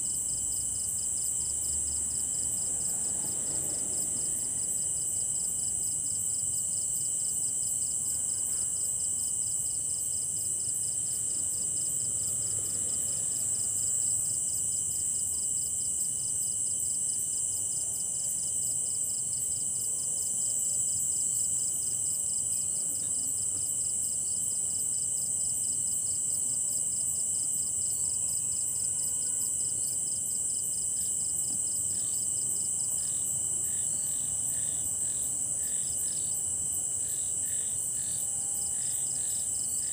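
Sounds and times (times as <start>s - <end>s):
crickets trilling: 20.4s - 39.9s.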